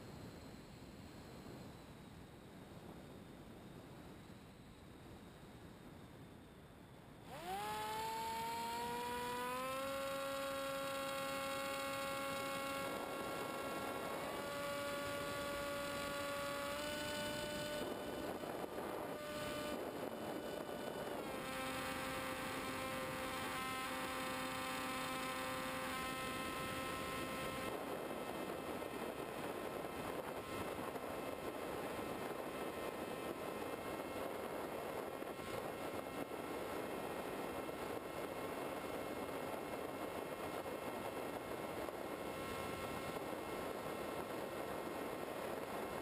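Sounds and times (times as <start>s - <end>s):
model plane motor whine: 0.0s - 5.4s, 6.2s - 46.0s
wind rushing over microphone: 7.3s - 46.0s.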